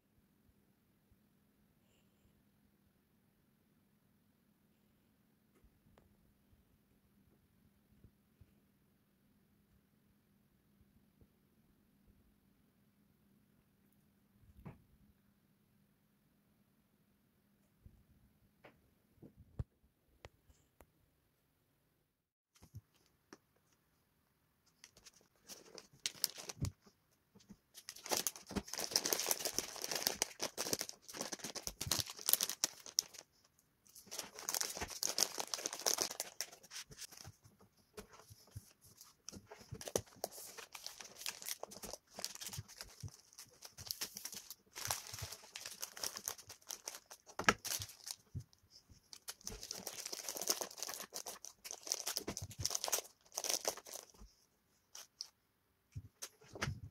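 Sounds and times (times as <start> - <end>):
plastic packets crinkling: 24.8 - 26.8, 27.8 - 33.3, 33.9 - 37.3, 39.6 - 48.5, 49.1 - 54.2.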